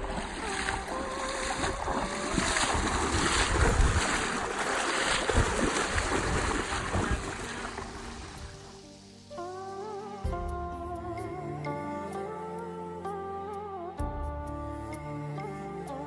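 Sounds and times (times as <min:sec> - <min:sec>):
wind buffeting microphone: 0:00.0 - 0:08.8
wading through river water: 0:00.0 - 0:09.0.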